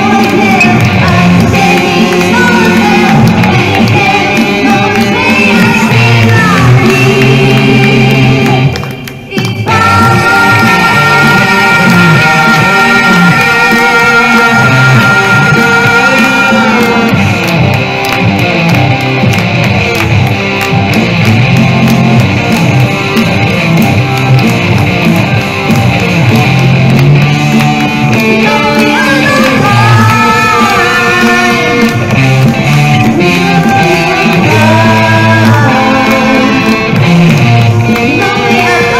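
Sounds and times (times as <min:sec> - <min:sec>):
person singing: 0:00.0 - 0:17.6, 0:25.3 - 0:38.9
electric guitar through amplifier: 0:00.0 - 0:38.9.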